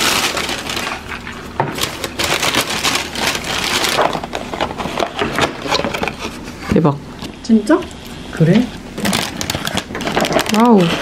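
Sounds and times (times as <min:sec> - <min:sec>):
cardboard box crackling: 0:00.0 - 0:05.6, 0:09.0 - 0:11.0
plastic and paper bags rustling: 0:00.0 - 0:06.7, 0:09.0 - 0:11.0.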